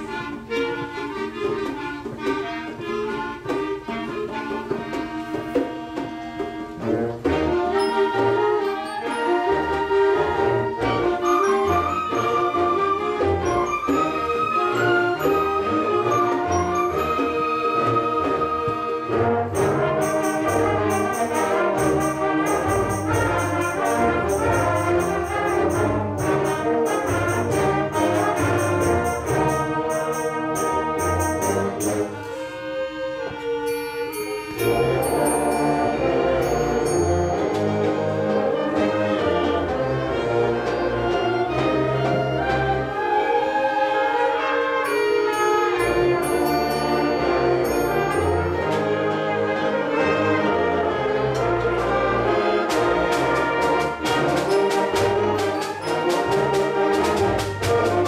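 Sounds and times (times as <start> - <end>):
concert band playing: 10.4 - 42.8, 44.8 - 58.0.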